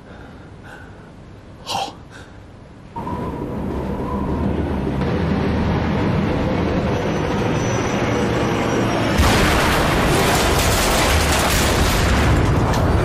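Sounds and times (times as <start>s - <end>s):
aircraft engines droning: 2.3s - 9.2s
loud explosion rumbling: 9.2s - 12.7s.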